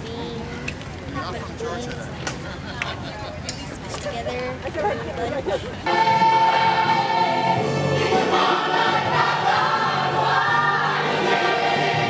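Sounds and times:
choir singing: 5.8 - 12.0.

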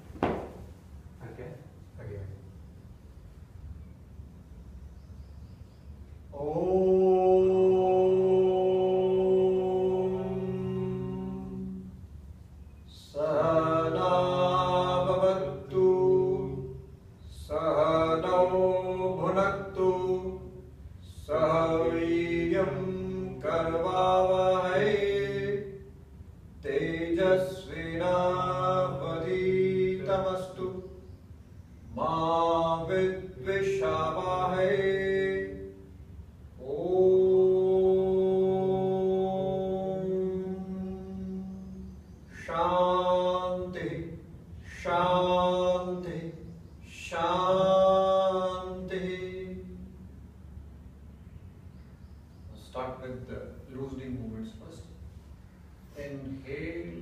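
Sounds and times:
man chanting: 6.3 - 12.0, 12.9 - 25.9, 26.6 - 31.1, 31.9 - 35.9, 36.6 - 50.0, 52.5 - 55.0, 55.9 - 57.0.

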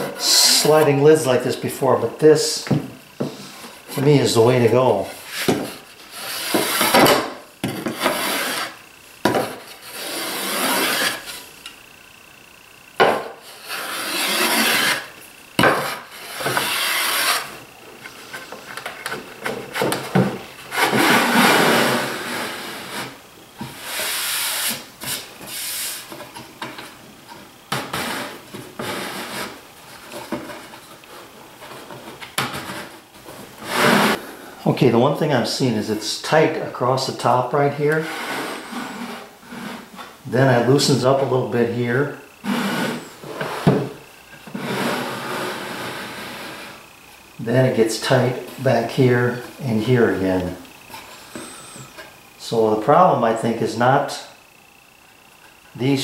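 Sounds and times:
wooden lid sliding in grooves: 5.2 - 11.4, 13.5 - 15.1, 15.7 - 26.0, 33.6 - 34.2, 38.0 - 40.1, 42.4 - 46.8.

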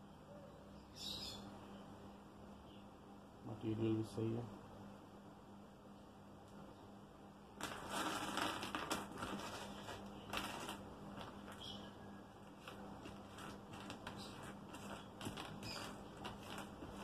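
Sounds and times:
plastic bag crinkling: 7.6 - 11.8, 12.5 - 17.0.

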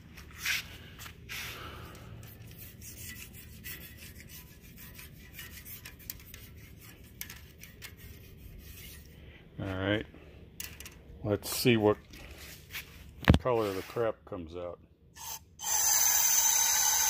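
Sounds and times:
wire brush rasping inside metal: 2.3 - 9.1.

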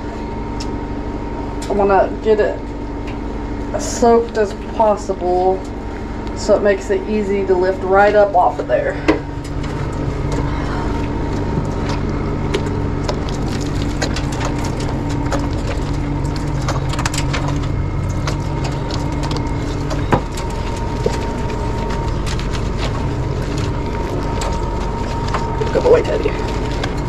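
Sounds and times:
low hum: 0.0 - 27.0
water running into metal tub: 7.9 - 27.0.

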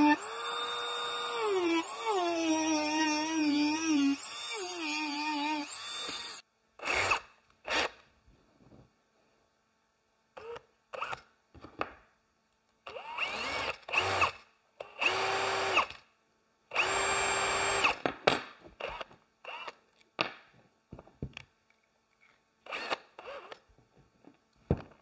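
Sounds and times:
power drill drilling: 0.0 - 8.0, 12.9 - 16.0, 16.7 - 18.0, 18.8 - 19.8, 22.7 - 23.6.

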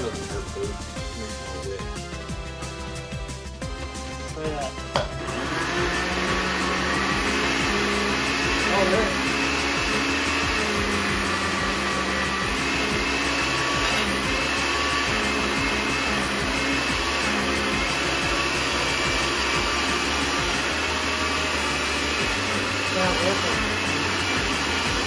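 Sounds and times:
blender chopping vegetables: 2.6 - 25.0.

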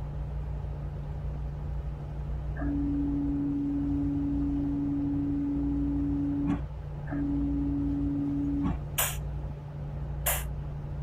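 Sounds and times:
diesel engines droning: 0.0 - 11.0
steady single-pitched tone: 2.6 - 8.8
short hiss: 9.0 - 9.2, 10.2 - 10.5.

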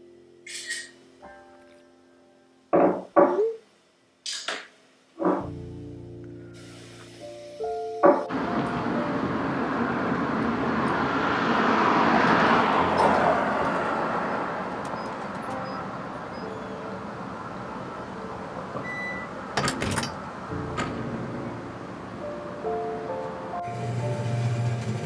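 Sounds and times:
vehicle passing by: 8.3 - 16.3.

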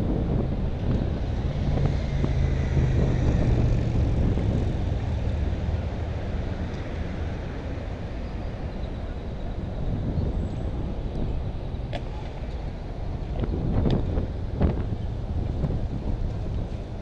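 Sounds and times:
cars driving past: 0.0 - 17.0
traffic rumble: 0.0 - 17.0.

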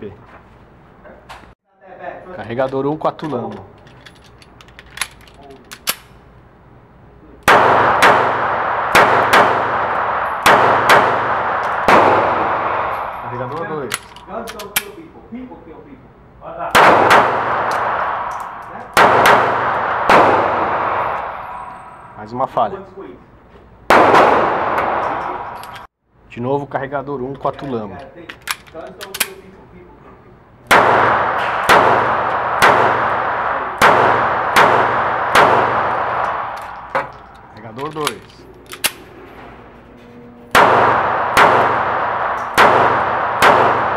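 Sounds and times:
pistol shots echoing indoors: 7.4 - 13.7, 16.8 - 21.9, 30.7 - 37.1, 40.5 - 43.9.

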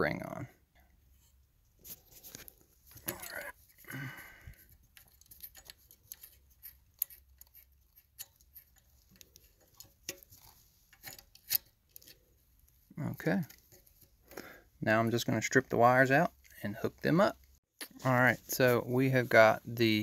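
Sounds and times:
plastic ring clicking and scraping: 4.4 - 14.5.

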